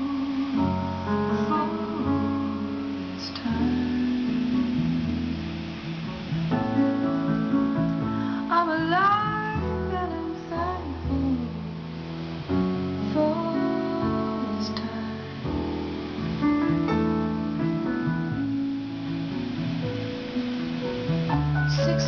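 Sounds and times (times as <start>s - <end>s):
woman singing: 0.0s - 5.6s, 8.4s - 11.9s, 13.0s - 15.5s, 21.7s - 22.0s.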